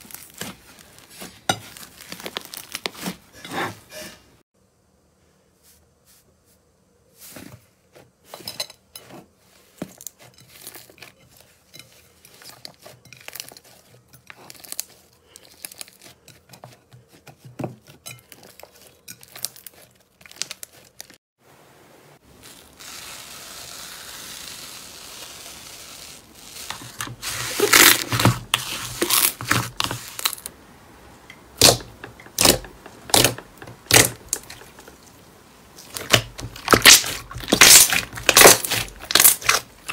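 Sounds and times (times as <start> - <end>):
loud air pockets popping in slime: 31.6 - 34.6, 35.8 - 39.9.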